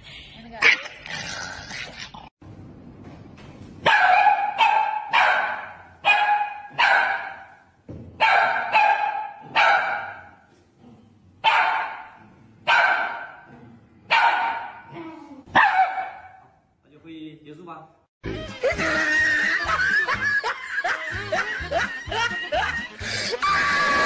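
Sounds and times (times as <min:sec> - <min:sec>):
small dog barking: 0:03.9 - 0:07.5, 0:08.2 - 0:10.3, 0:11.4 - 0:13.5, 0:14.1 - 0:14.8, 0:15.5 - 0:16.4.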